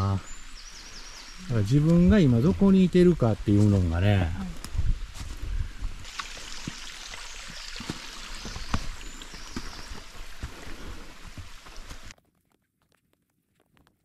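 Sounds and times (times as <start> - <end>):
stream babbling: 6.0 - 12.1.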